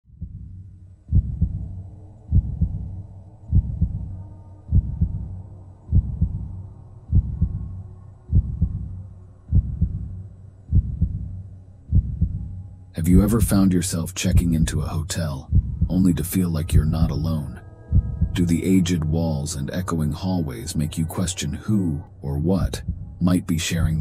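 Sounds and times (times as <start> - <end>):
heartbeat double thumps: 0.1 - 7.7, 8.3 - 13.6, 15.4 - 17.2, 17.9 - 18.5, 22.6 - 23.2
low steady drone: 0.2 - 24.0.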